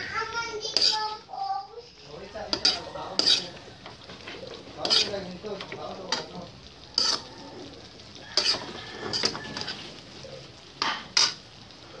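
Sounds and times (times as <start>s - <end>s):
vegetables sizzling in a pan: 0.0s - 12.0s
metal spoon scraping pan: 0.6s - 1.2s, 2.2s - 7.5s, 8.2s - 10.0s, 10.8s - 11.4s.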